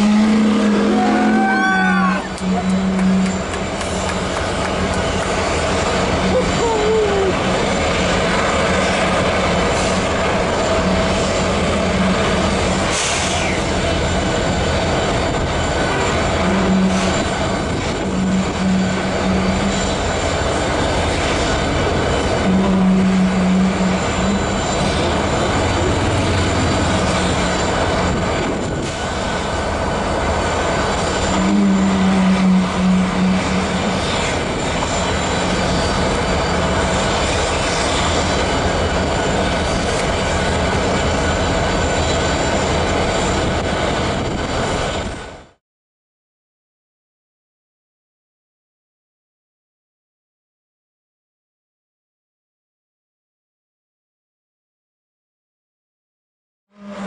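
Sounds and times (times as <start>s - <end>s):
steam venting with low rumble: 0.0s - 45.6s.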